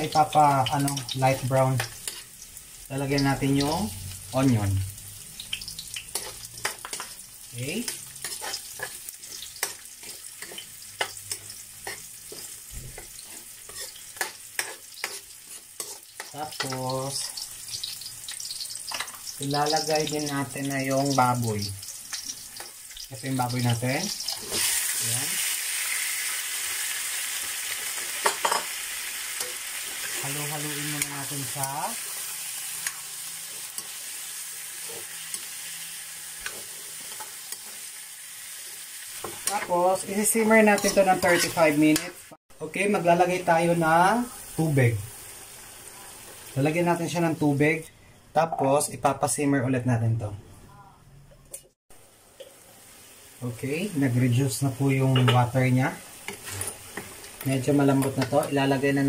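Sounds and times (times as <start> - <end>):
garlic and onion sizzling in oil: 0.0 - 49.8, 51.6 - 59.0
metal spatula scraping wok: 0.7 - 2.4, 5.4 - 7.2, 7.8 - 19.9, 21.8 - 25.2, 38.7 - 42.2, 55.0 - 58.8.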